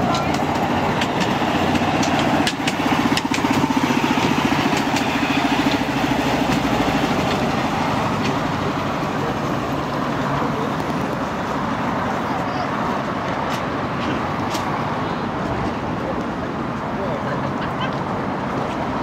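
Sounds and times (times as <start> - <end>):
small locomotive engine pulsing: 0.0 - 13.0.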